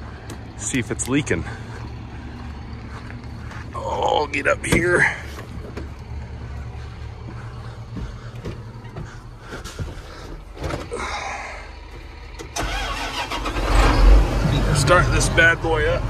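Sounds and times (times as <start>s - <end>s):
tractor engine hum: 0.0s - 16.0s
knocks and clunks: 4.6s - 6.1s, 7.2s - 11.2s.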